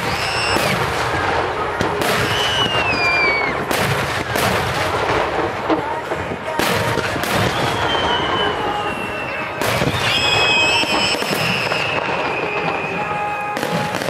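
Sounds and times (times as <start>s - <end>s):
falling firework whistle: 0.0s - 1.2s, 2.0s - 3.7s, 7.2s - 14.0s
multi-tone firework whistle: 0.0s - 5.2s, 6.5s - 14.0s
fireworks crackling: 0.0s - 14.0s
loud firework burst: 0.0s - 14.0s.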